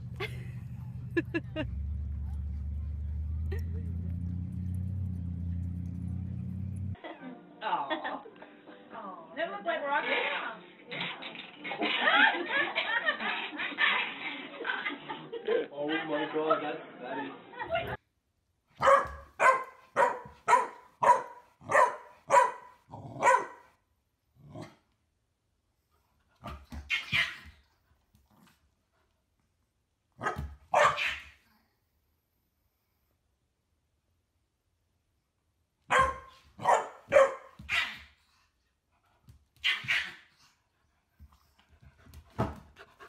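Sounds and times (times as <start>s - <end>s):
small dog barking: 18.8s - 23.7s, 30.2s - 31.4s, 35.9s - 38.1s, 39.6s - 40.2s.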